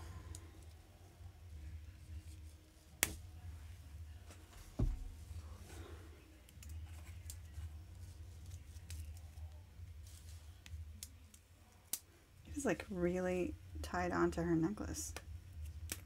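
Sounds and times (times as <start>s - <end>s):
low thump: 4.8s - 5.2s.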